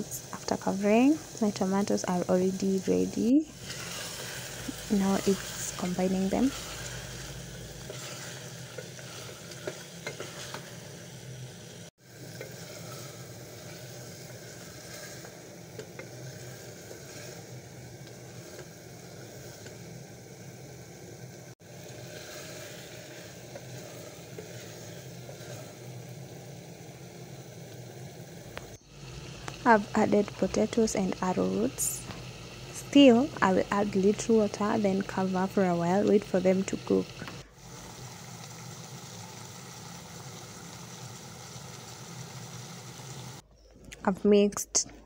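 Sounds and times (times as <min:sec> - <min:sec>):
food sizzling in a pot: 0:00.0 - 0:43.4
wooden spoon scraping a pot: 0:03.5 - 0:10.9, 0:12.3 - 0:19.8, 0:21.8 - 0:26.2.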